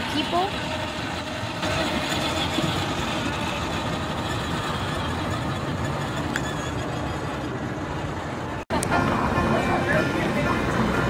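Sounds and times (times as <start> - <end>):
toy truck rolling over wooden planks: 0.0 - 8.5.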